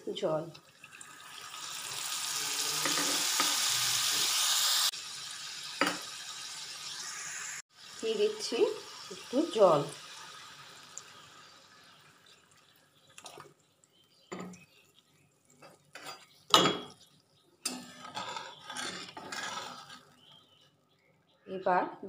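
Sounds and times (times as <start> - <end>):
water pouring into pan: 0.6 - 13.6
spatula scraping pan: 15.6 - 16.4, 17.6 - 20.6.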